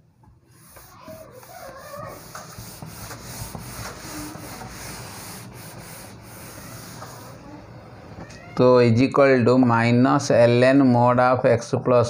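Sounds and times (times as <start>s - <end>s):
cloth rubbing on whiteboard: 0.5s - 7.4s
faint whiteboard squeaks: 0.6s - 7.6s.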